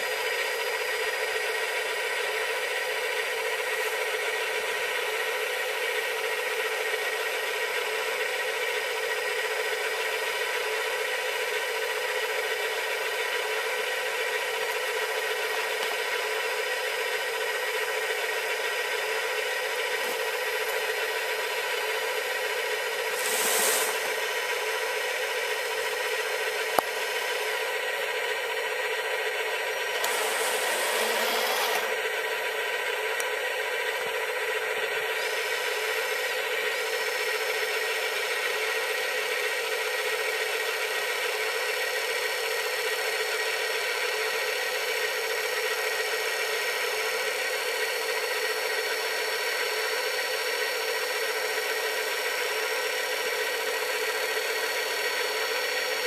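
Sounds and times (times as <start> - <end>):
hydraulic pump whine: 0.0 - 56.0
short scraping rushes: 23.1 - 24.2.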